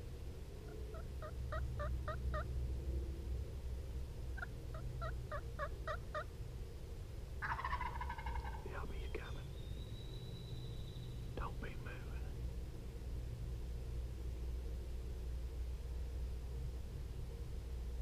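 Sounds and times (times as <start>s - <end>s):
turkey gobble: 0.6s - 2.5s, 4.4s - 6.3s, 7.4s - 8.6s
turkey yelps: 0.6s - 2.5s, 4.4s - 6.3s, 7.4s - 8.6s.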